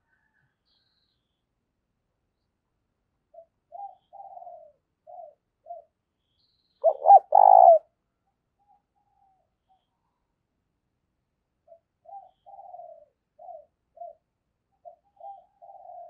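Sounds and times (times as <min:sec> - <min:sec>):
dove cooing: 0:03.3 - 0:05.9, 0:06.8 - 0:07.9, 0:11.7 - 0:14.2, 0:14.8 - 0:16.0.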